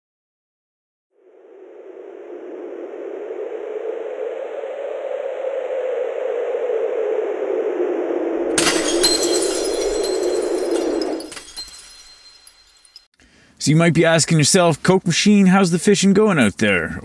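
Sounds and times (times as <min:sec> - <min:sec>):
whoosh of noise: 0:01.2 - 0:08.6
shattering crash with tinkling shards: 0:08.6 - 0:13.1.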